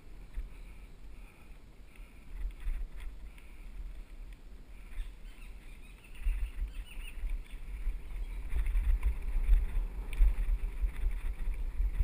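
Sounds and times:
wind buffeting microphone: 2.2 - 12.0
bike rattling clicks and knocks: 8.3 - 12.0.

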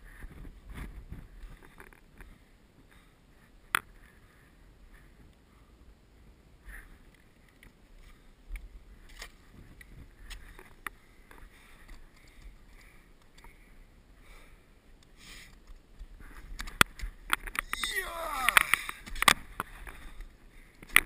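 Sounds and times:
wind rumble on microphone: 0.0 - 2.9, 8.5 - 10.4
person breathing: 10.2 - 15.6, 17.9 - 19.1.

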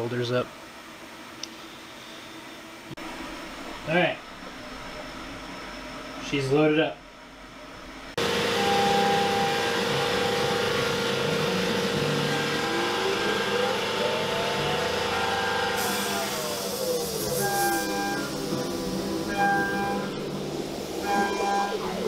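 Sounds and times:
coolant spray hiss: 8.2 - 19.3
milling machine spindle tone: 8.2 - 22.0
rising and falling whine: 8.2 - 22.0.

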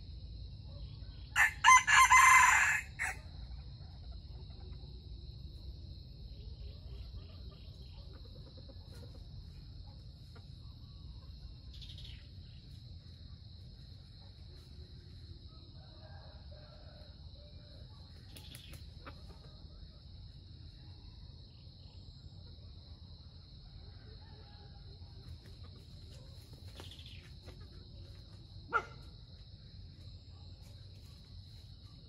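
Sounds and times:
high-pitched insect chorus: 0.0 - 32.0.

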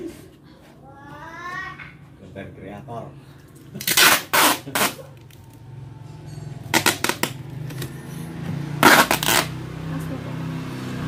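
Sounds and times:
packing tape ripping off roll: 3.8 - 5.6, 6.7 - 7.8, 8.8 - 9.6.

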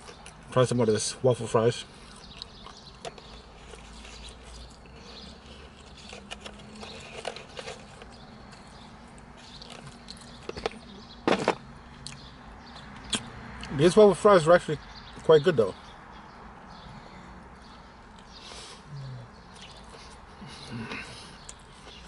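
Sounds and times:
person chewing food: 2.0 - 10.4.

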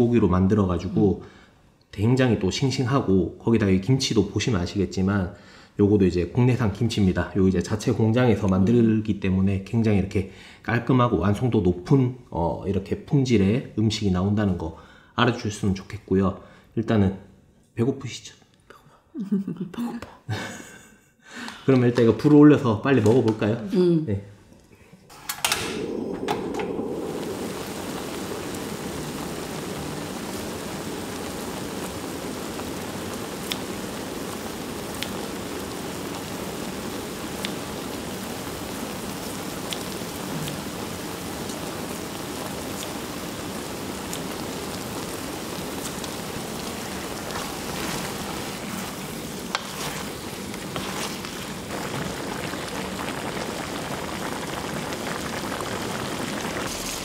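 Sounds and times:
food sizzling: 25.5 - 57.0.

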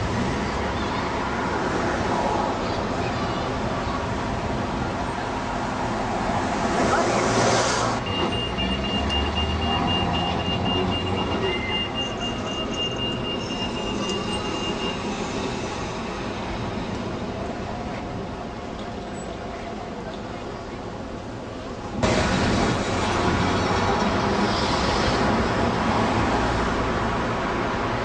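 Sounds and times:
electric tram rolling: 0.0 - 28.0.

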